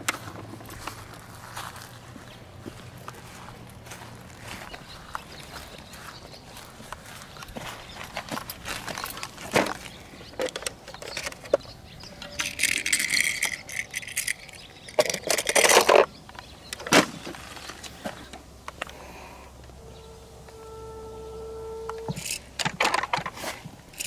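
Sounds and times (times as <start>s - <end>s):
clattering rattle in plastic case: 8.1s - 16.1s, 22.1s - 24.0s
toy trains clicking and rattling: 8.2s - 16.1s, 22.2s - 24.0s.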